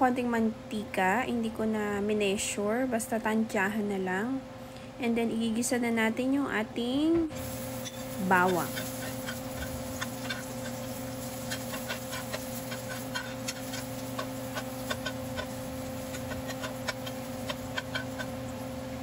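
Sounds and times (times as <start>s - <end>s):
steady low hum: 0.0s - 19.0s
garlic sizzling in hot oil: 7.4s - 19.0s
metal spoon stirring in pan: 7.4s - 19.0s.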